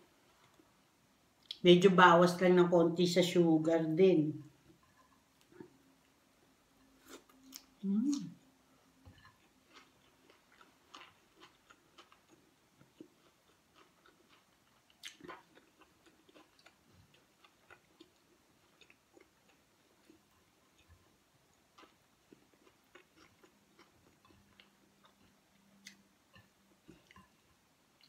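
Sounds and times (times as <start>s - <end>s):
person chewing: 7.0s - 8.4s, 9.1s - 28.0s.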